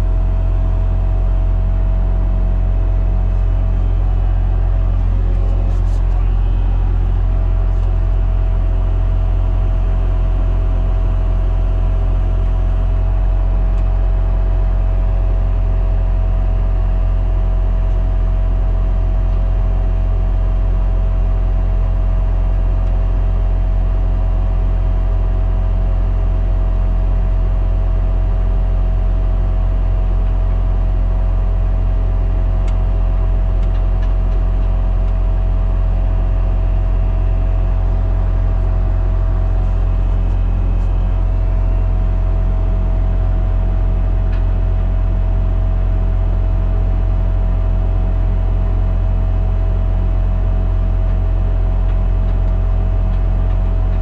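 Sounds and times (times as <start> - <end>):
steady high whine: 0.0 - 14.3, 37.2 - 42.9
diesel engine droning: 0.0 - 19.0, 29.6 - 47.0, 50.6 - 54.0.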